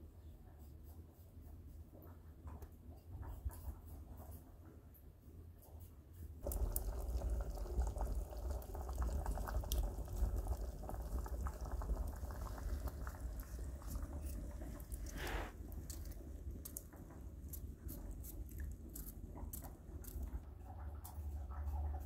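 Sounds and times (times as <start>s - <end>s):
pot of liquid boiling: 6.4s - 22.0s.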